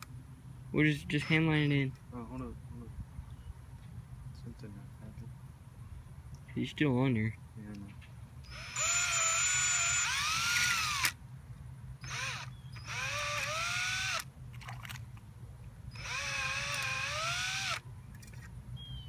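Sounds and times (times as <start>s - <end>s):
cordless drill motor whining: 8.5s - 11.2s, 12.0s - 14.2s, 15.9s - 17.8s.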